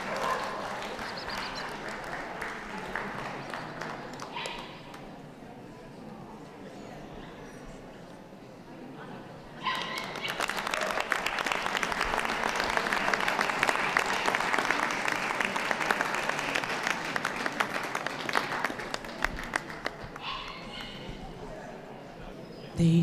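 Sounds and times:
audience applauding: 0.0 - 5.0, 9.9 - 20.3.

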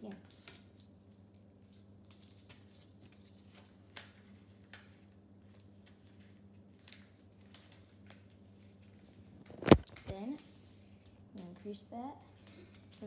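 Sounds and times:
paper rustling and creasing: 0.2 - 10.4.

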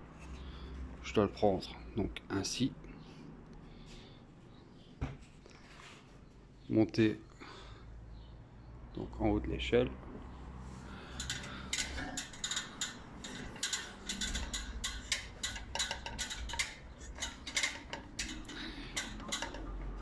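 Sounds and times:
metal ladder clanking: 11.2 - 20.0.

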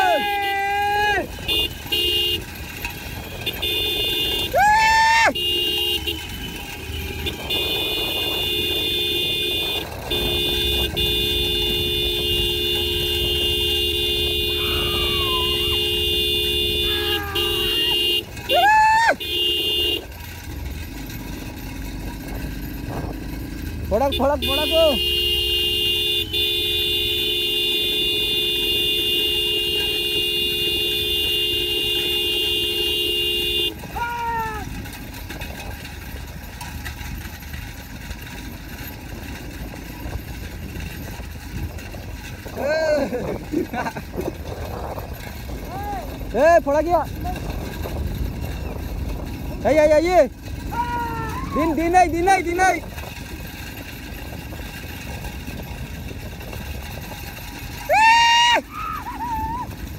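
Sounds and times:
person shouting: 0.0 - 1.3, 4.4 - 5.4, 14.4 - 16.0, 16.7 - 19.2, 33.9 - 34.7, 45.7 - 46.1, 50.7 - 52.8, 57.8 - 59.7
vehicle horn blasts: 1.1 - 20.2, 23.9 - 34.4.

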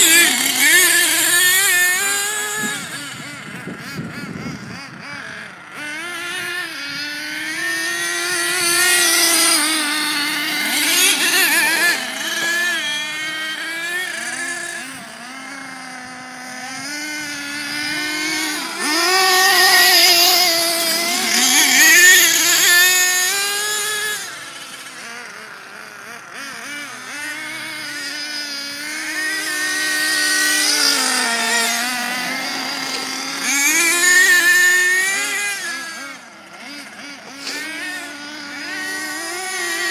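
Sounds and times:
small nitro engines revving: 0.0 - 39.9.

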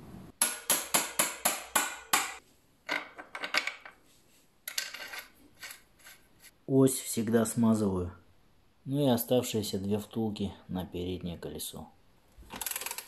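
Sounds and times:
metal parts clinking: 12.5 - 13.0.

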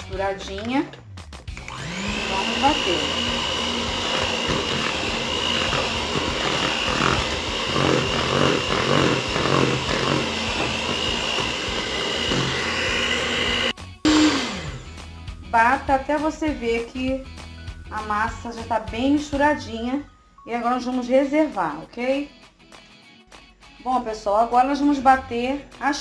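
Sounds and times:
stand mixer motor whine: 1.5 - 15.0
batter churning: 1.8 - 13.7.

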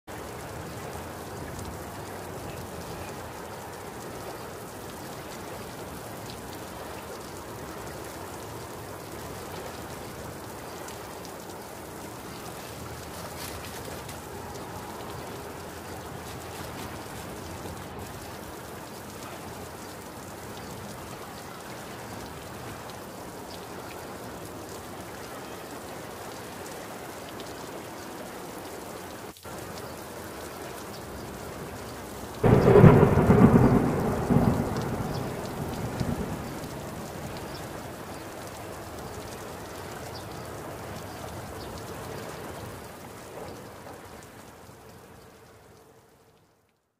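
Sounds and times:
steady rain falling: 0.0 - 46.9
thunderclap rumbling: 32.4 - 38.1.

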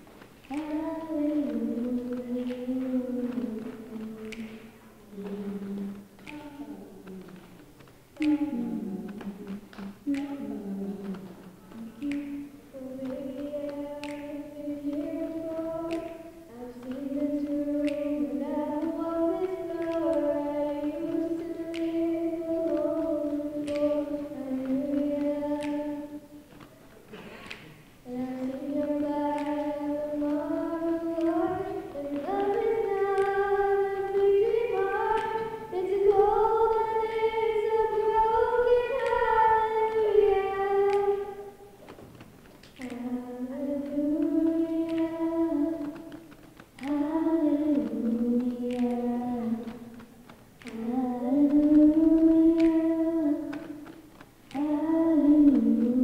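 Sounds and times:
sharp beat clicks: 0.0 - 56.0
children singing in harmony: 8.2 - 26.5, 27.1 - 41.8.

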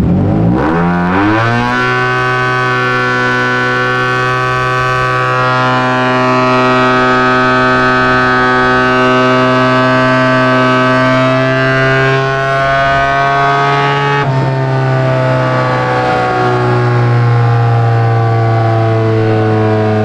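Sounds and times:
scooter engine revving high: 0.0 - 20.0.

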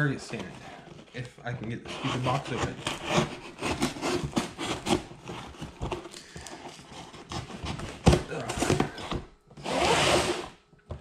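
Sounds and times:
cardboard rustling: 0.0 - 11.0
tape tearing: 1.6 - 10.6
knife sawing through packing tape: 1.8 - 6.0, 9.6 - 10.5.

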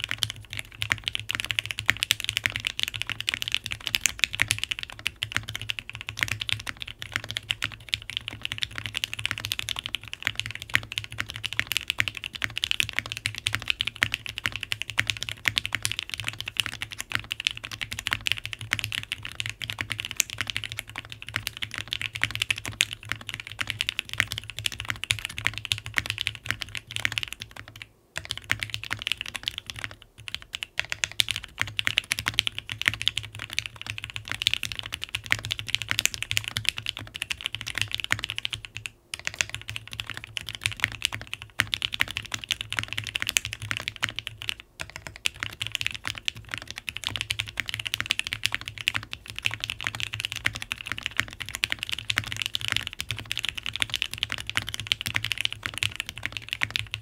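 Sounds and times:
fast typing on mechanical keyboard: 0.0 - 57.0.

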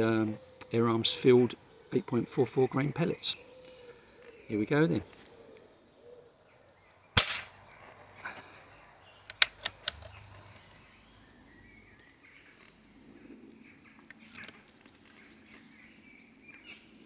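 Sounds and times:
air rifle shot crack: 7.2 - 7.6.

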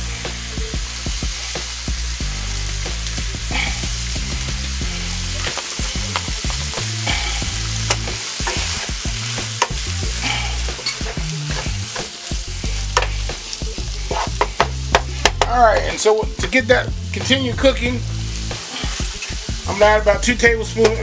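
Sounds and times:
chicken sizzling in a skillet: 0.0 - 21.0
wooden spoon scraping a pan: 5.0 - 13.3, 14.0 - 16.0.

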